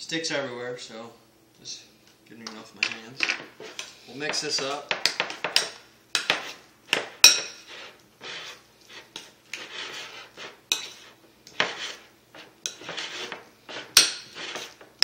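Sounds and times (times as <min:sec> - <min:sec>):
fork scraping ceramic bowl: 0:07.2 - 0:14.9.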